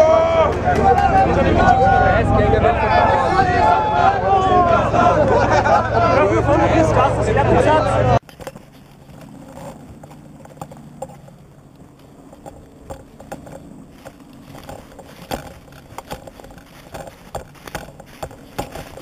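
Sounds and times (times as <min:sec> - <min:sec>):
footsteps on leafy sandy ground: 0:08.2 - 0:19.0
gear rattling: 0:08.2 - 0:19.0.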